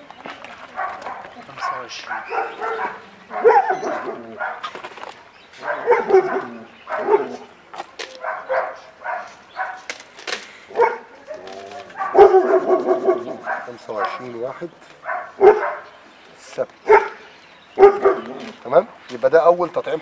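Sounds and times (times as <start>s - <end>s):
dog barking: 0.7s - 4.8s, 5.6s - 7.5s, 8.1s - 10.0s, 10.7s - 14.4s, 15.0s - 15.9s, 16.9s - 18.5s.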